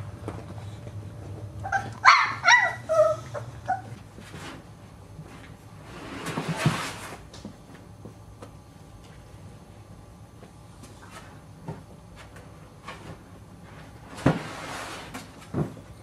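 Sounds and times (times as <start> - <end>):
puppy yipping and whining: 1.6 - 4.0
puppy sliding down plastic slide: 5.8 - 7.2, 14.1 - 15.7.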